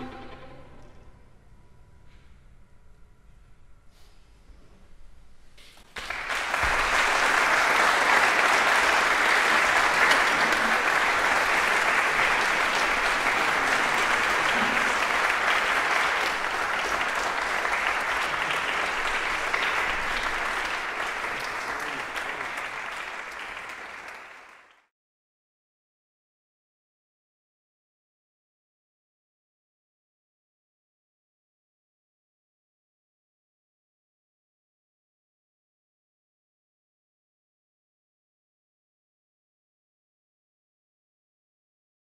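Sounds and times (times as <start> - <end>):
applause: 5.9 - 24.9.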